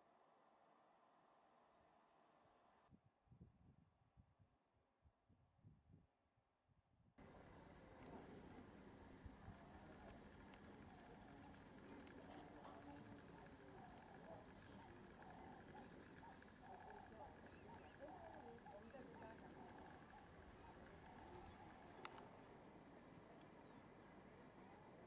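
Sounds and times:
faint irregular low sounds: 7.2 - 25.0
insects chirping: 7.2 - 25.0.

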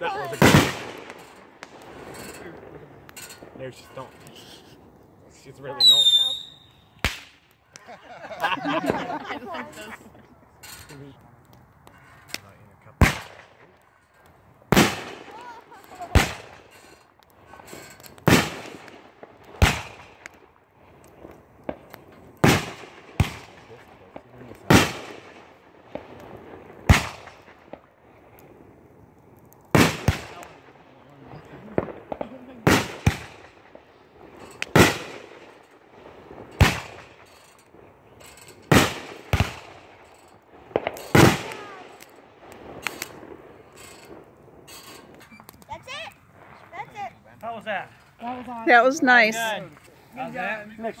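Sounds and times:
firework bangs with echo: 0.0 - 4.2, 5.8 - 7.4, 13.0 - 13.7, 14.7 - 16.7, 17.4 - 20.6, 21.2 - 28.0, 29.7 - 37.9, 38.5 - 44.4
faint firework pops: 5.8 - 7.9, 11.5 - 16.6, 17.2 - 20.4, 21.0 - 28.5, 29.6 - 35.6, 40.7 - 44.3.

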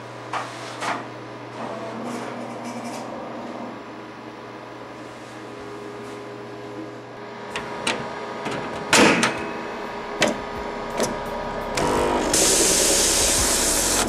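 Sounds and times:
steady hum: 0.0 - 14.0
short motor buzz: 10.1 - 14.0.

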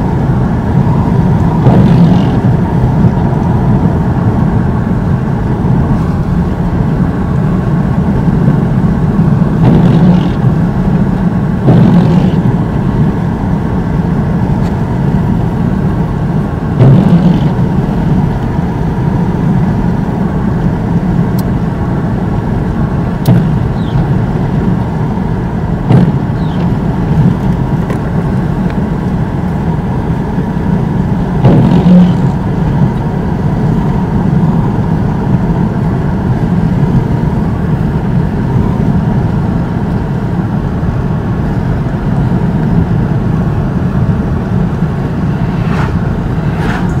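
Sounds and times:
car road and engine noise: 0.0 - 47.0
car bump: 23.3 - 24.0.

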